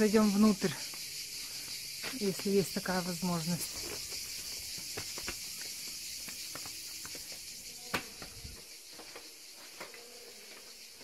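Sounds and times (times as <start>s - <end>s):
cicadas buzzing: 0.0s - 11.0s
footsteps: 3.6s - 10.8s.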